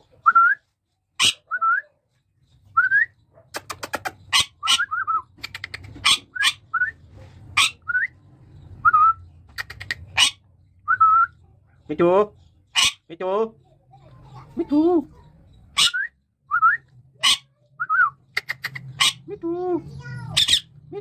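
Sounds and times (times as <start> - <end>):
parakeet whistles and squawks: 1.2 - 11.4, 12.7 - 13.1, 15.1 - 19.3, 20.3 - 20.8.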